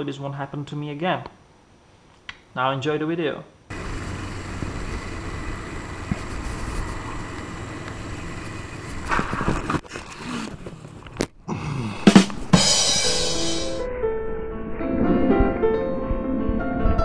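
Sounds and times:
motorcycle engine: 3.7s - 11.0s.

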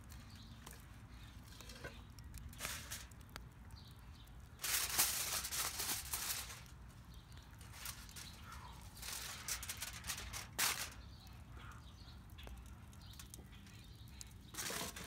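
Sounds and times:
crackling rustling noise: 0.0s - 15.0s
faint bird chirps: 7.1s - 15.0s.

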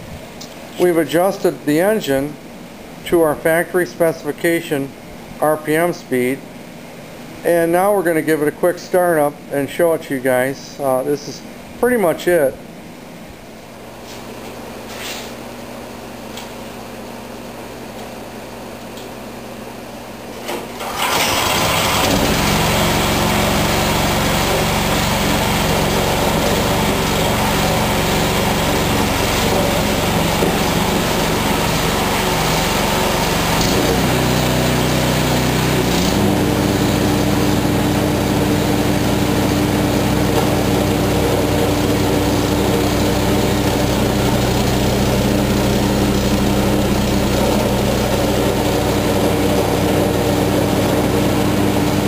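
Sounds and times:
snowblower engine running: 20.8s - 52.0s.

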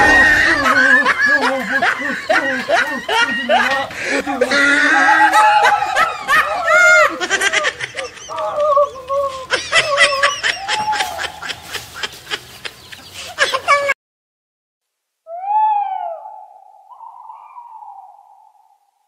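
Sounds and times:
people crying out: 0.0s - 1.6s, 2.3s - 7.2s, 8.3s - 11.6s
people laughing: 0.0s - 14.0s.

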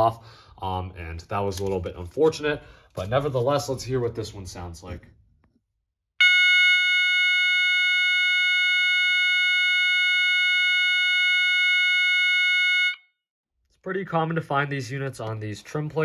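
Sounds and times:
continuous alarm horn tone: 6.2s - 13.0s.

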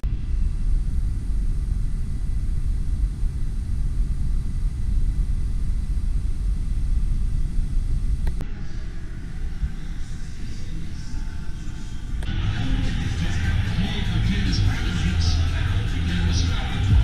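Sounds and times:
faint high whine: 0.0s - 17.0s
low rumbling noise: 0.0s - 17.0s
click: 8.2s - 8.5s.

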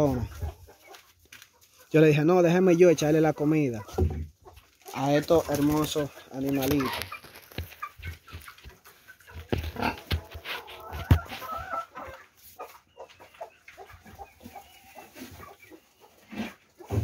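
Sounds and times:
hens clucking: 0.0s - 17.0s
pig feeding at wooden trough: 6.8s - 17.0s.

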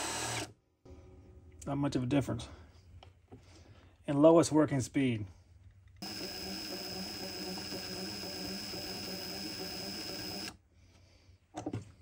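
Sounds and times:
impact wrench motor whining: 0.0s - 0.5s, 6.0s - 10.6s.

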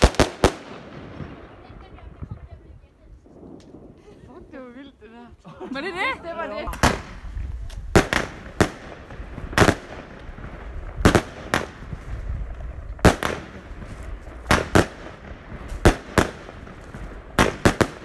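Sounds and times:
firework battery bangs: 6.7s - 7.2s, 7.9s - 12.3s.

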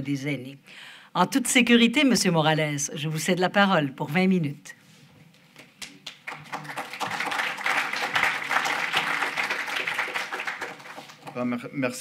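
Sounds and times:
audience applauding: 6.0s - 11.5s.

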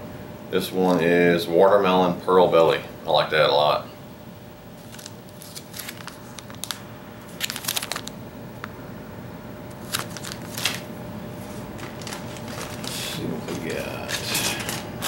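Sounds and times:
plastic packs crinkling: 4.8s - 8.2s, 9.7s - 15.0s
rummaging in a cardboard box: 11.7s - 14.8s.

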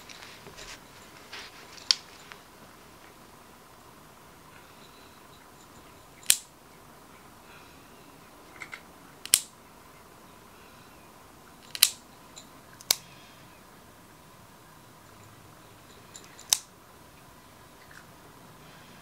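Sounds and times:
nail clippers snipping claws: 6.2s - 6.5s, 8.6s - 9.5s, 11.6s - 12.0s, 12.8s - 13.0s, 16.2s - 16.7s.

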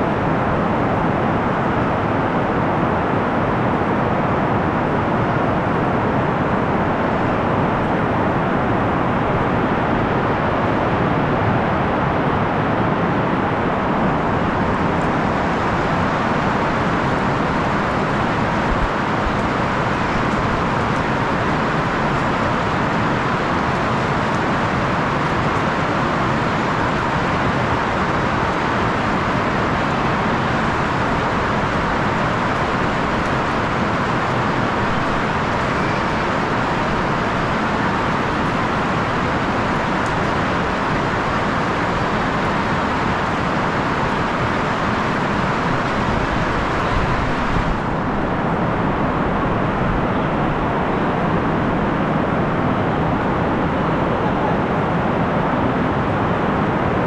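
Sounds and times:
heavy rain hissing: 13.6s - 54.6s.

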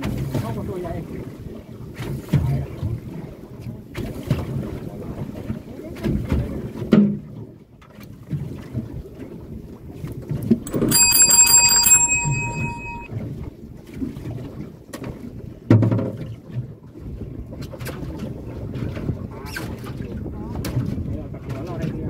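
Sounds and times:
bright chiming bell: 10.7s - 13.1s.

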